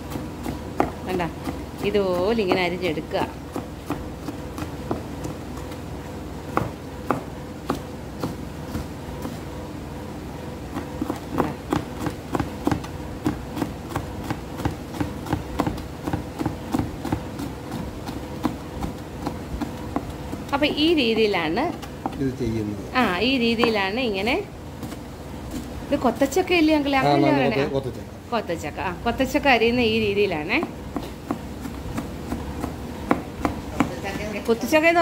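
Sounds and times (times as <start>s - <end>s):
knife chopping on plastic board: 0.0s - 5.8s, 6.5s - 9.4s, 10.7s - 22.2s, 30.6s - 34.1s.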